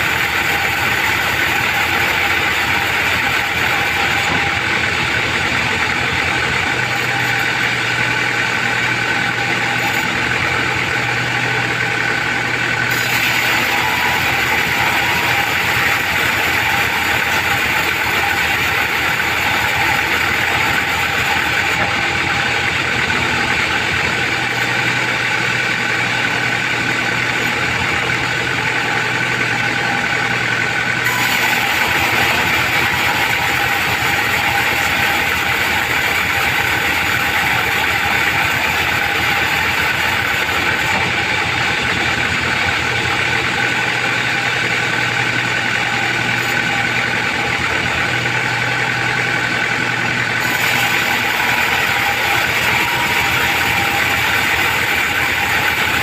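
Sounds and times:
band saw ripping through wood: 12.9 - 22.0, 50.4 - 56.0.

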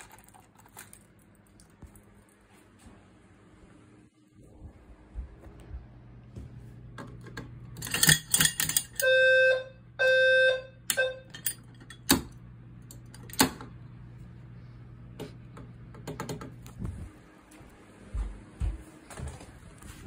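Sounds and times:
fire alarm horn blasts: 9.0 - 11.3.

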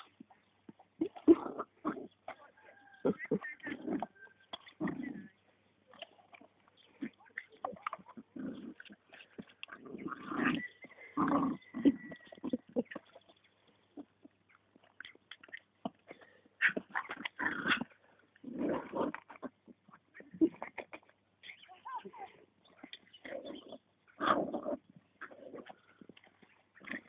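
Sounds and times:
dog growling: 1.0 - 5.4, 8.1 - 13.2, 23.2 - 26.1.

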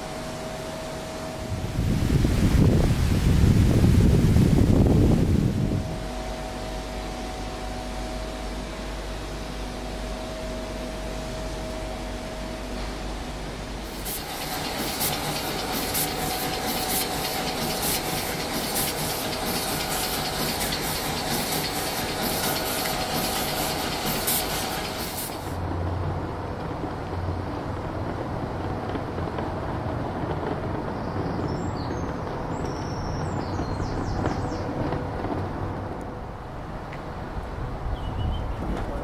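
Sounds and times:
diesel locomotive engine idling: 5.3 - 29.9.

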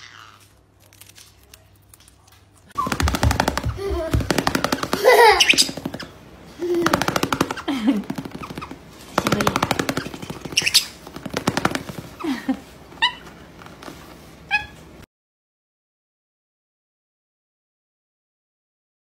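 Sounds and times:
parrot high squeaks: 0.0 - 0.6, 5.2 - 6.1, 9.8 - 11.0, 13.0 - 13.4, 14.5 - 14.9
parrot rattling buzzes: 6.8 - 12.2.

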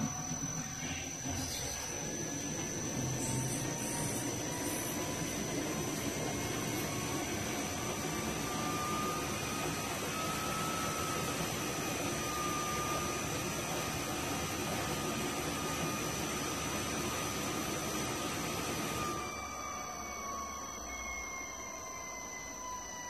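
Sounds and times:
pump machinery hiss: 0.0 - 19.3
thin high whine: 0.0 - 23.0
faint wavering tone: 19.2 - 23.0.

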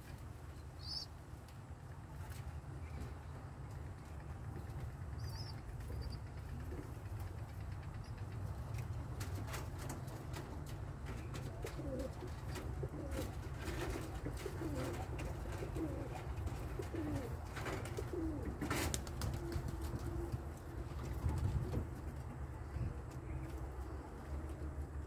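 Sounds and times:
pigeons cooing: 11.2 - 20.4.

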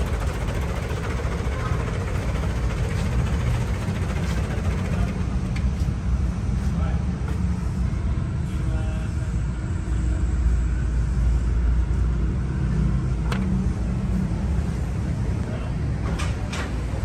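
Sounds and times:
vehicle engine rumbling: 0.0 - 17.0.

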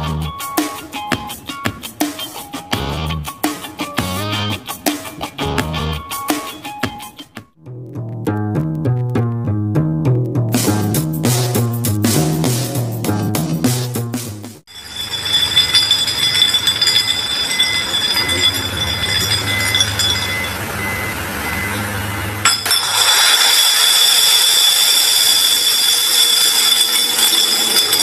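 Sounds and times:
beeping alarm: 14.7 - 22.4
machinery whine: 14.8 - 24.5
forklift engine running: 16.6 - 22.4.

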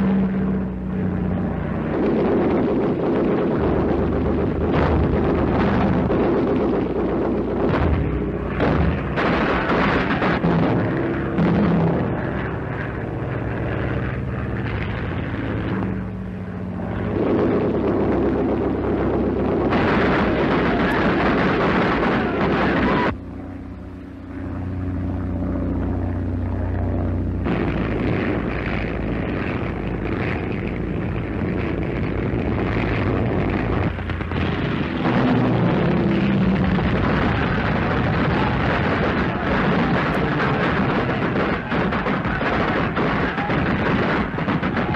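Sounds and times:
aircraft engines droning: 0.0 - 44.9
explosions: 7.7 - 12.2, 27.5 - 44.9.

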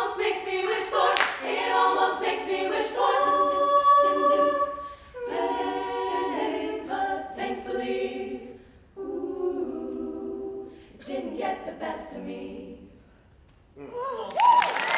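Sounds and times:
women singing in close harmony: 0.0 - 13.1.

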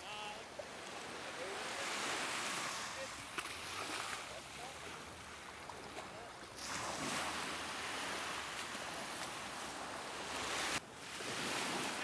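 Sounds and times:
small surf washing up beach: 0.0 - 12.0.

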